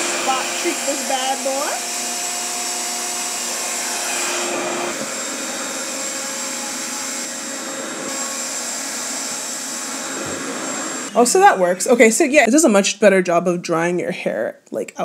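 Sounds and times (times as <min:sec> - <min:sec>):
hair dryer air rushing: 0:00.0 - 0:12.0.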